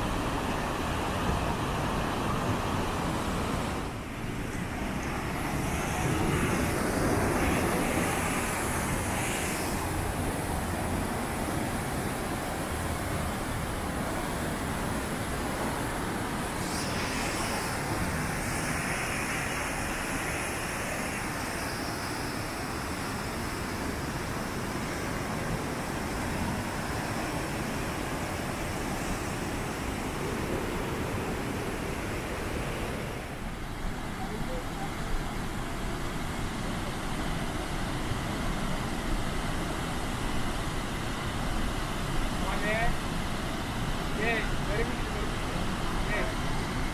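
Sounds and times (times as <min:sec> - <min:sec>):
river rushing through rapids: 0:00.0 - 0:46.9.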